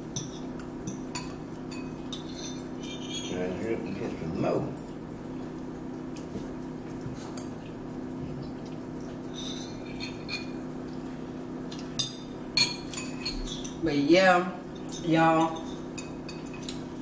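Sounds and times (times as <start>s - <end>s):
cutlery scraping against bowls: 0.2s - 3.9s, 9.3s - 10.6s, 12.0s - 13.8s, 14.8s - 16.8s.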